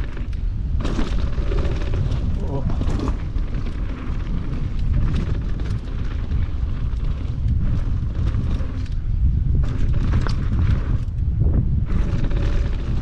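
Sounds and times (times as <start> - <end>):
bike and gravel rattling: 0.0 - 13.0
wind buffeting microphone: 0.0 - 13.0.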